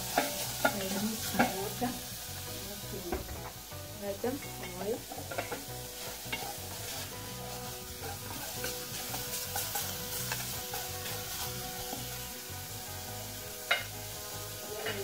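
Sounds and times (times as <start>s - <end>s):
onions sizzling in pot: 0.0s - 15.0s
spoon scraping and tapping pot: 0.1s - 1.7s, 4.4s - 7.0s, 8.0s - 12.1s, 13.7s - 13.9s.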